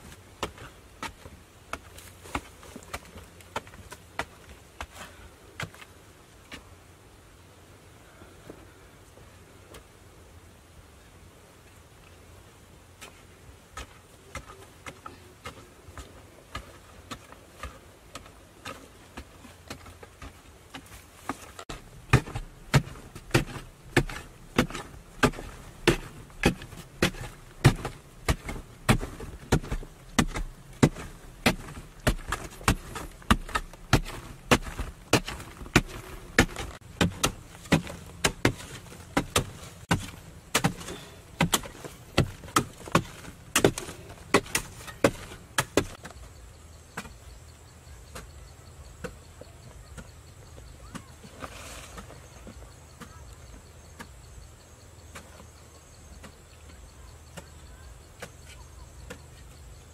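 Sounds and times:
digging tool striking hard earth: 0:13.7 - 0:46.2.

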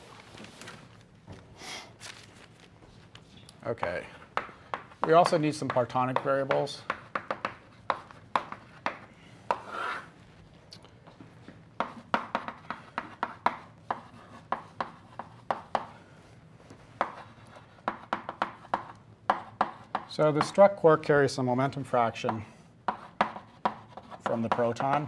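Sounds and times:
chalk tapping and scratching: 0:04.4 - 0:10.1, 0:11.8 - 0:15.9, 0:16.7 - 0:20.6, 0:22.2 - 0:25.0.

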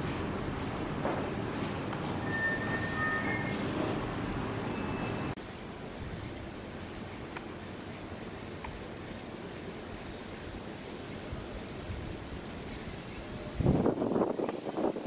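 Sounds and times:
steady background noise: 0:00.0 - 0:15.0.

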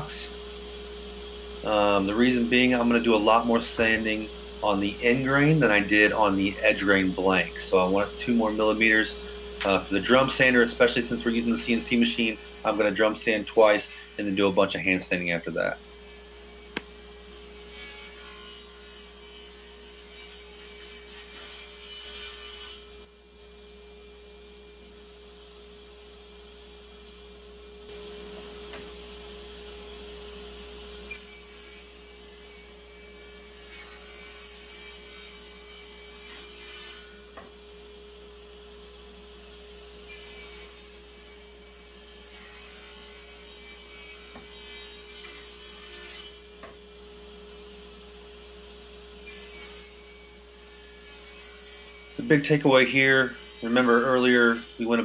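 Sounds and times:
table saw humming: 0:00.0 - 0:23.1, 0:27.1 - 0:55.0
saw cutting wooden board: 0:01.7 - 0:22.9, 0:31.0 - 0:37.3, 0:40.1 - 0:46.4, 0:49.2 - 0:55.0.

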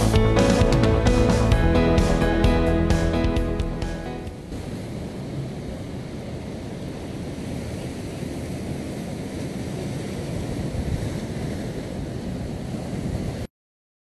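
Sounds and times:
sea surf: 0:00.0 - 0:13.5
wind on microphone: 0:04.3 - 0:13.5.

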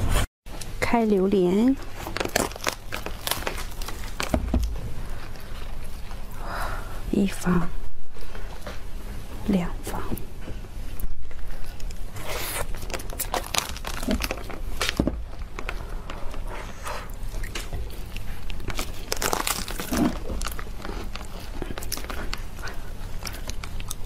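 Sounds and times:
husk crackling and tearing: 0:01.8 - 0:06.4, 0:11.4 - 0:16.4, 0:17.1 - 0:24.0.

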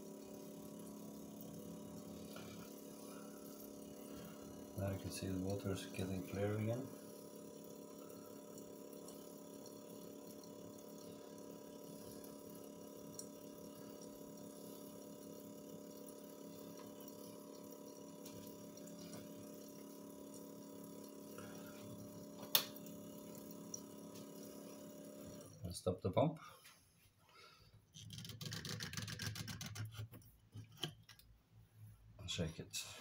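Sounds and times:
water trickling into a sink: 0:00.0 - 0:25.7
water pump humming: 0:00.0 - 0:26.3.

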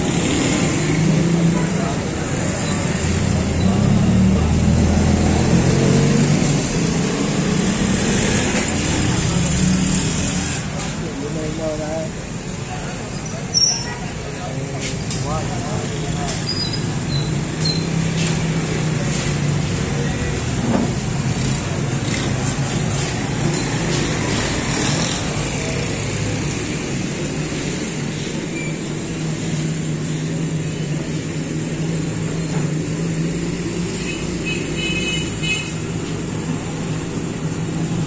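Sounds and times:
street traffic noise: 0:00.0 - 0:38.0.

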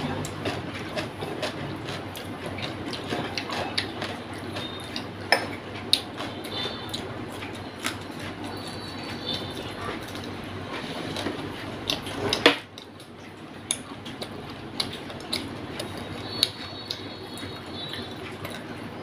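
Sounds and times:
chewing: 0:00.0 - 0:19.0
fingers clicking against a plate: 0:11.8 - 0:17.1.

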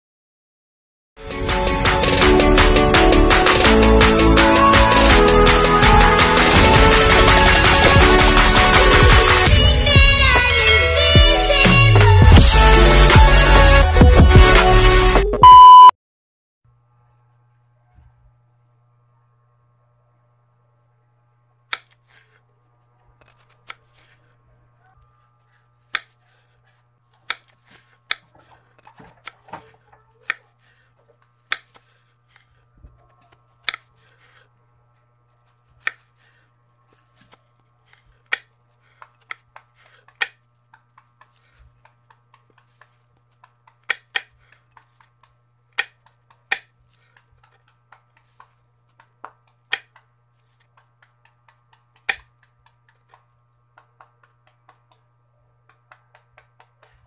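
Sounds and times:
knife crunching through fruit peel: 0:21.3 - 0:57.0.

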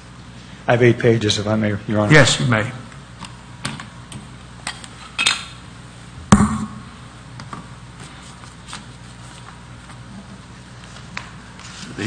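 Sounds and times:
sharp knock with low thud: 0:06.3 - 0:06.8.

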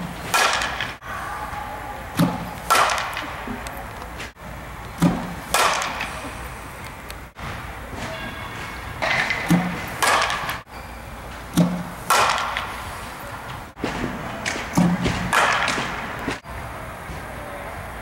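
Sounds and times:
bat cracking ball: 0:00.0 - 0:01.0, 0:02.1 - 0:06.2, 0:09.0 - 0:10.6, 0:11.5 - 0:12.8, 0:13.8 - 0:16.5.

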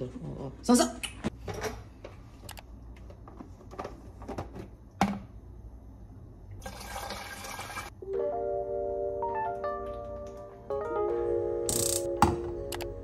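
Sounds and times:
tune of stepped notes: 0:08.0 - 0:13.0.

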